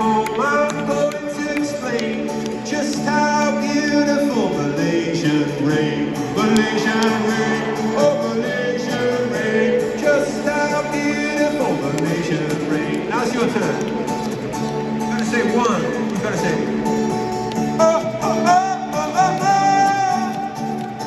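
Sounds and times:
man singing: 0.0 - 14.1, 15.1 - 16.8, 17.7 - 20.8
acoustic guitar: 0.0 - 21.0.

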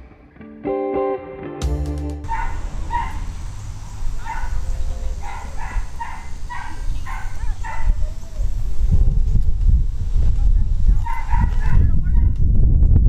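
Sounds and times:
dog barking: 2.3 - 8.3, 11.0 - 12.4.

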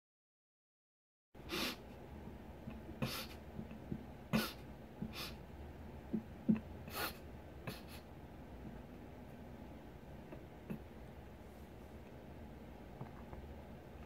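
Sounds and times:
man breathing sharply: 5.0 - 5.4
small knocks and rustles: 12.9 - 13.5.

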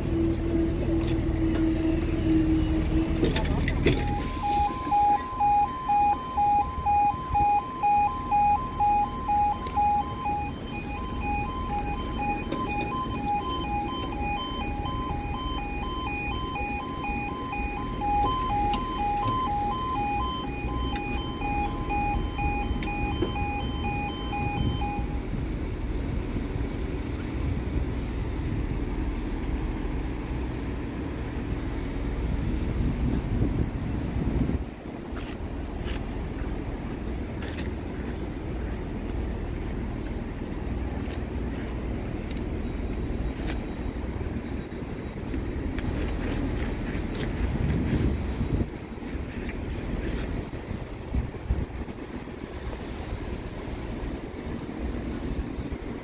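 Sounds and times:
level crossing alarm beeping: 1.4 - 25.4.

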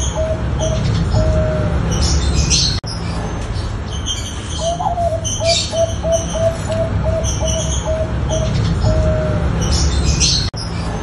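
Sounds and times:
dove cooing: 0.0 - 2.7, 4.6 - 9.8
high bird chirps: 0.0 - 11.0.

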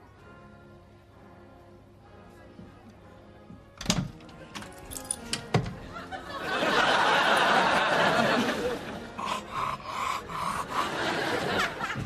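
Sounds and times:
audience laughter: 5.8 - 12.0.

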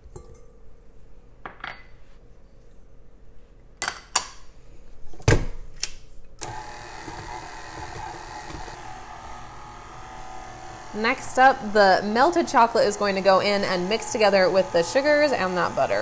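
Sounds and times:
stand mixer motor running: 6.4 - 16.0.

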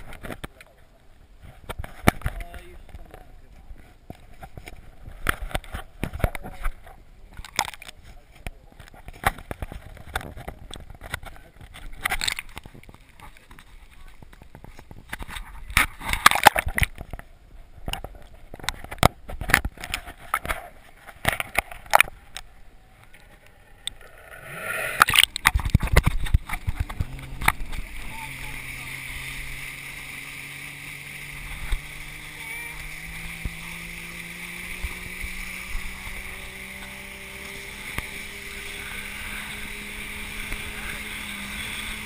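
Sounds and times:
water splashing: 19.7 - 42.0.

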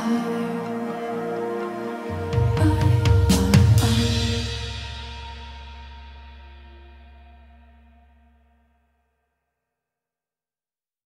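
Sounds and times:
soft sustained music notes: 0.0 - 8.8
bass line: 1.2 - 8.8
drum beats: 2.3 - 7.3.

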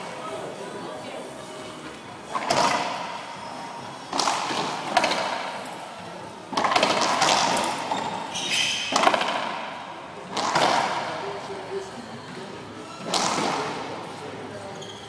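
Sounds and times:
ball hitting court walls: 4.1 - 5.7, 6.5 - 11.2
racquet hitting ball: 4.1 - 5.7, 6.5 - 11.2, 13.0 - 13.9.

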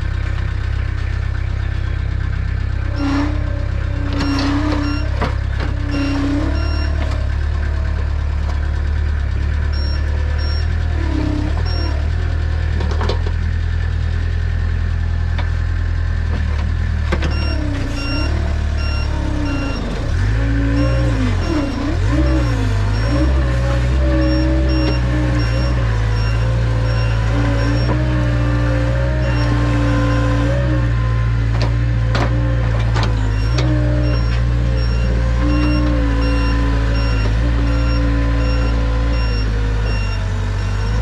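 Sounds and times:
loader clanking: 0.0 - 41.0
skid steer engine under load: 0.0 - 41.0
backup alarm beeping: 4.1 - 5.2, 5.8 - 7.0, 9.7 - 10.8, 17.3 - 28.4, 33.2 - 41.0.

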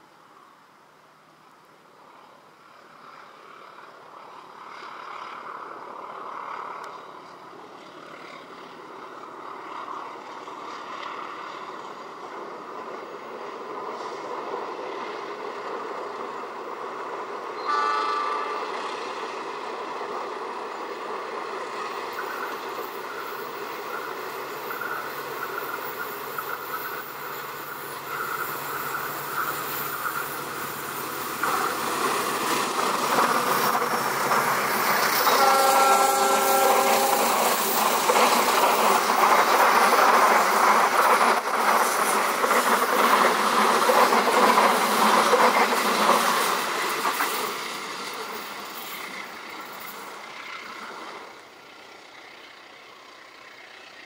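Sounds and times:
diesel locomotive engine drone: 0.0 - 54.0
train horn: 17.6 - 18.8, 35.2 - 37.6.

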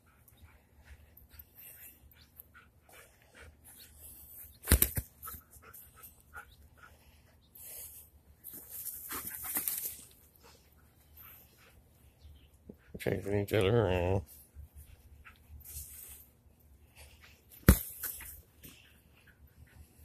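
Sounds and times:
dogs panting and scuffling: 0.0 - 20.0
rustling: 7.6 - 11.5.

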